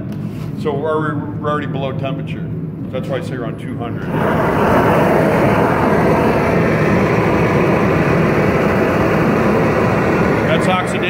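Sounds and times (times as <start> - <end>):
gas torch flame rushing: 4.0 - 11.0.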